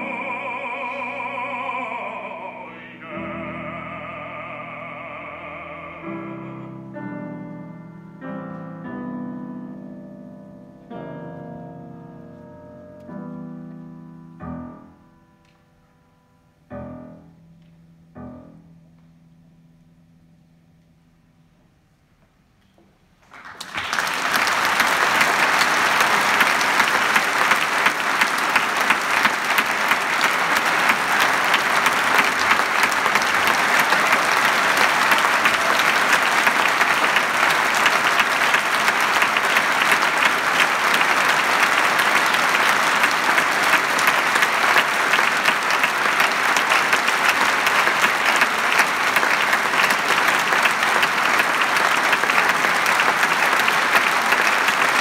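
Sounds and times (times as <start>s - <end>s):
audience applauding: 0.0s - 6.7s, 23.2s - 55.0s.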